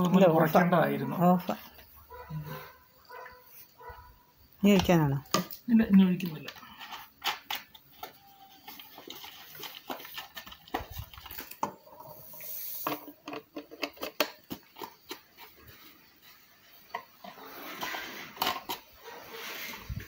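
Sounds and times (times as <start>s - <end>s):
short hiss: 12.3s - 13.1s
clicks and knocks of plastic parts: 12.8s - 15.4s.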